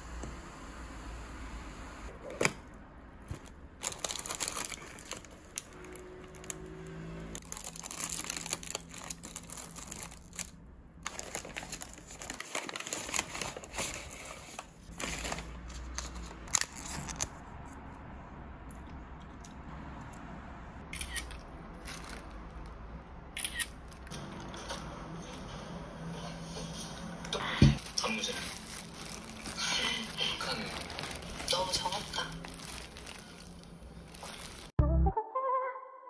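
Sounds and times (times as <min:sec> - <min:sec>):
paper crinkling and rustling: 0:03.2 - 0:06.7, 0:07.4 - 0:17.4, 0:21.8 - 0:22.3, 0:27.8 - 0:34.8.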